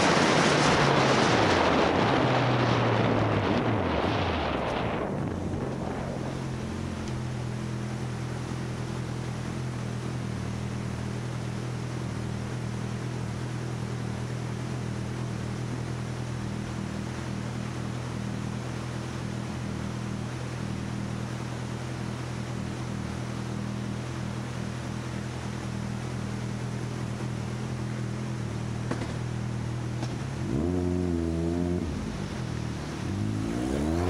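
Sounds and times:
wind rushing over microphone: 0:00.0 - 0:07.6.

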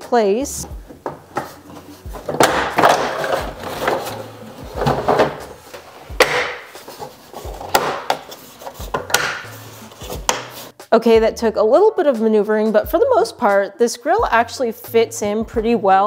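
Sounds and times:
plastic parts knocking and scraping: 0:00.6 - 0:10.7.

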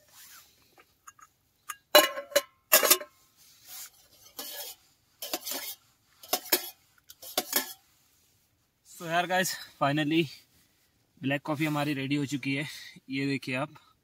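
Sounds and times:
spoon clinking and scraping cup: 0:04.2 - 0:07.8.

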